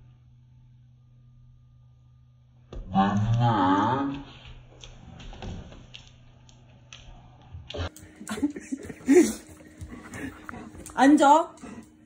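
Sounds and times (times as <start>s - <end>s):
person speaking: 10.2s - 11.6s.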